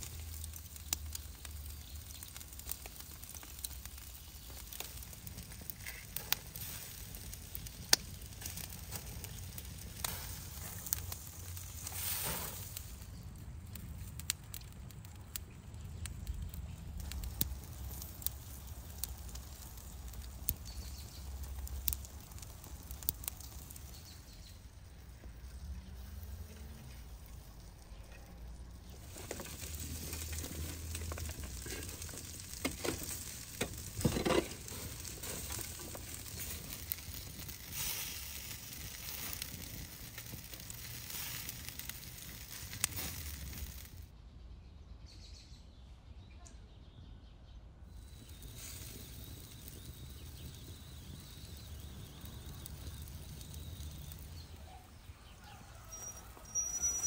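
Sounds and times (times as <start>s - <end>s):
charcoal fire crackling and sizzling: 0.0s - 44.1s, 47.9s - 57.0s
shovel scraping coals: 3.3s - 13.2s, 25.9s - 44.0s, 55.9s - 57.0s
sharp pops: 28.9s - 44.0s.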